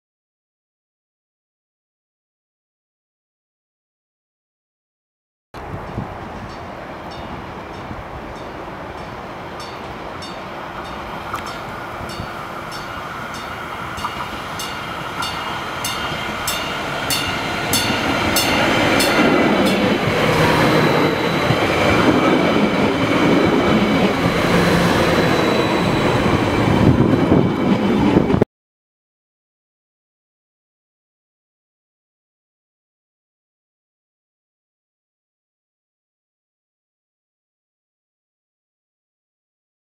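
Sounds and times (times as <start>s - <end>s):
railcar passing: 5.6s - 28.4s.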